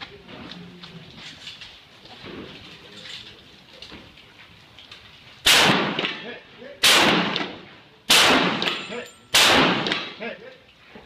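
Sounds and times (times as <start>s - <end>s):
shotgun shots with echo: 5.4s - 10.2s.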